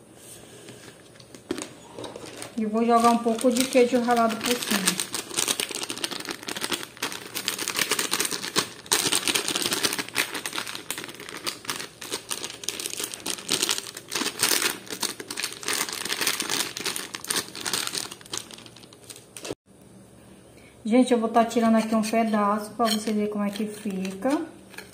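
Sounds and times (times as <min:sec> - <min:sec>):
plastic packet crinkling: 0:01.4 - 0:19.6.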